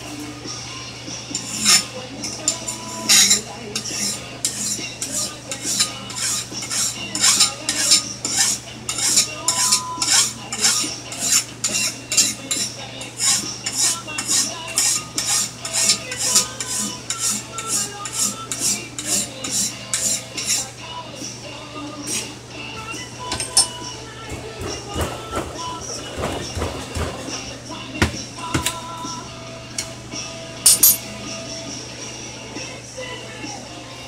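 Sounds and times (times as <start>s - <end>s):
file rasping on steel blade: 1.4s - 1.9s, 2.8s - 20.7s.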